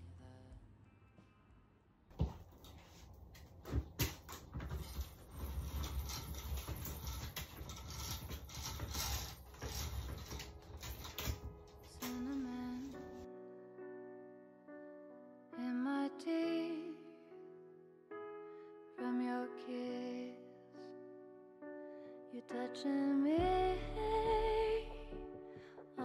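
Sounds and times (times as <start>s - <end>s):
roller blind chain rattling: 4.2s - 13.2s.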